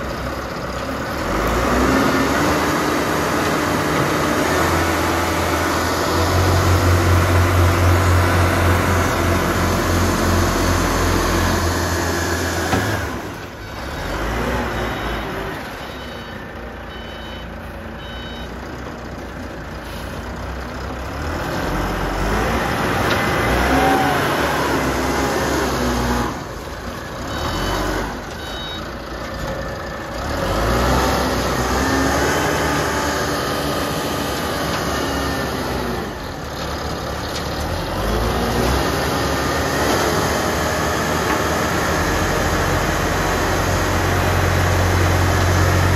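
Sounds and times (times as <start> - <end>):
concrete mixer engine revving: 1.1 - 15.5, 21.1 - 26.6, 30.2 - 36.2, 37.6 - 45.9
beeping warning alarm: 14.6 - 18.5, 27.3 - 28.9.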